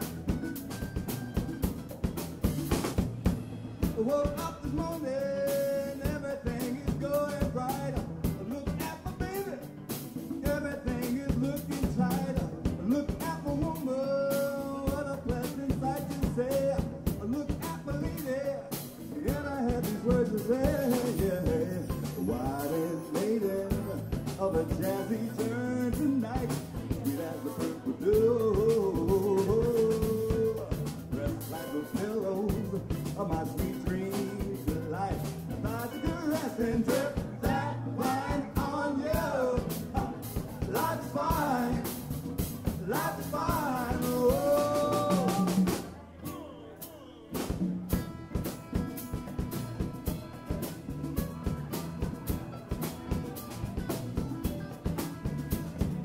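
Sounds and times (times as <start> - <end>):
congas: 0.0 - 56.0
drum kit: 0.0 - 56.0
guitars: 0.0 - 56.0
man singing: 3.8 - 47.2.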